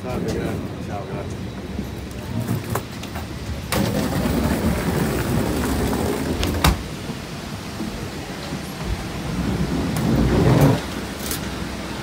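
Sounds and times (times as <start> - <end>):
steady rushing roar: 2.8 - 12.0.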